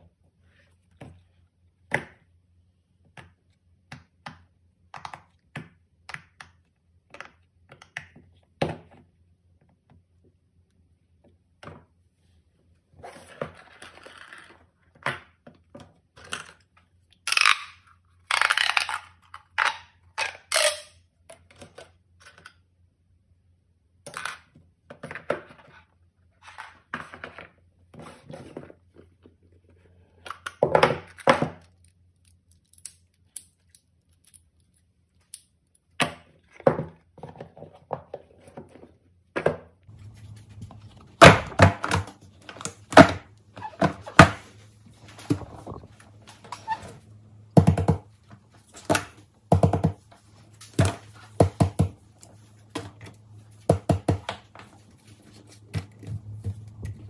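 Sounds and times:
hands handling boxes and toys: 36.1s - 57.0s.

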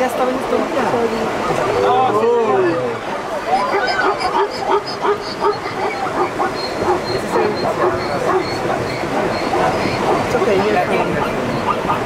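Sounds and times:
zebras barking yips: 3.2s - 12.0s.

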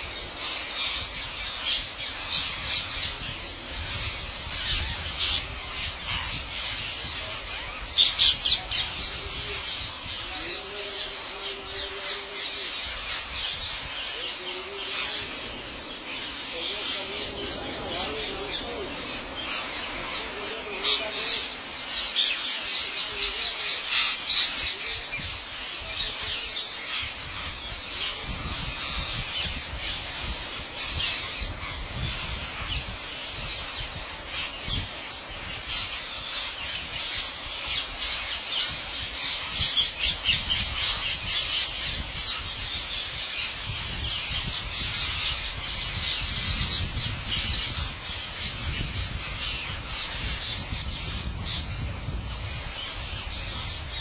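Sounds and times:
parakeets squawking: 0.0s - 32.8s.

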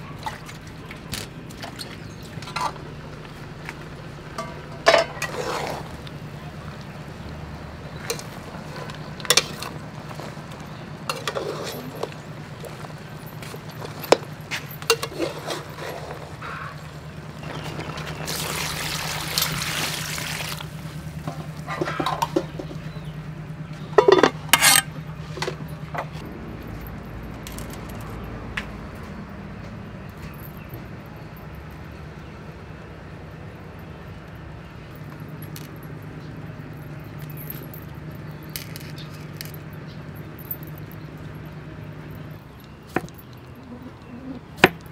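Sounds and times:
metal spatula scraping pot: 4.9s - 6.0s, 11.1s - 12.2s, 14.9s - 16.3s, 24.0s - 24.9s
stew liquid sounds: 17.4s - 22.5s.

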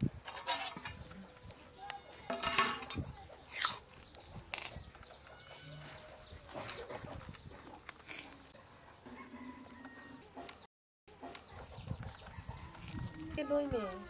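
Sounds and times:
metal spoon scraping rice: 0.2s - 1.1s
steel lid clanking against pan: 2.3s - 3.0s.

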